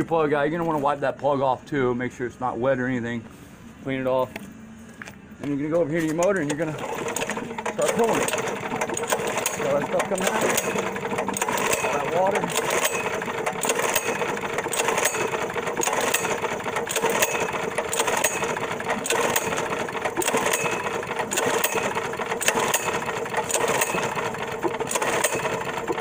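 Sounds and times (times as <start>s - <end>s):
engine cranking rattle: 6.0s - 26.0s.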